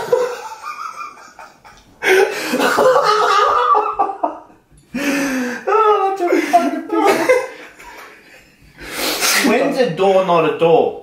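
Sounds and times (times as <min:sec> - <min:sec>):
men laughing hard: 0:00.0 - 0:08.4.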